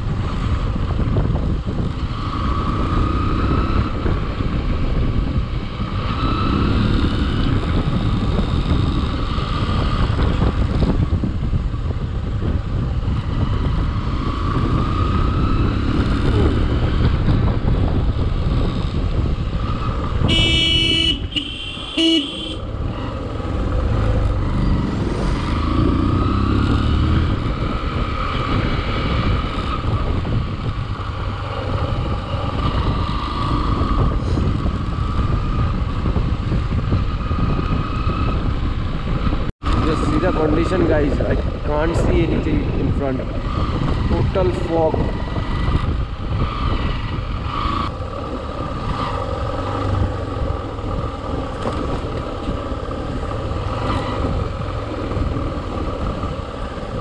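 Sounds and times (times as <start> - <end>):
motorcycle engine rumble: 0.0 - 57.0
wind: 0.0 - 57.0
vehicle horn honking: 20.2 - 22.7.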